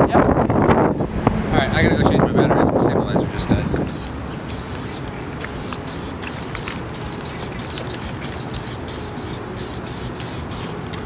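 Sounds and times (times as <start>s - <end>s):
spray can hissing in bursts: 3.6s - 10.8s.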